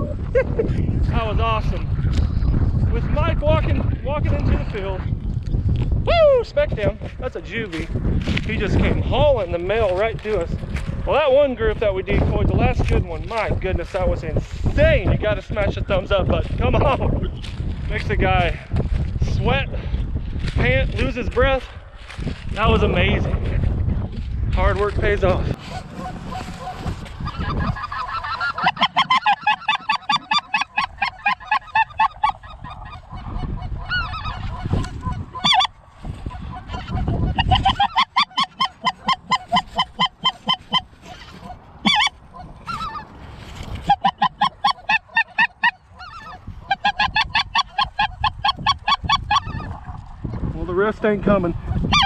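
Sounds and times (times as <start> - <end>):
goose call honks and clucks: 25.5 - 50.1, 51.6 - 52.0.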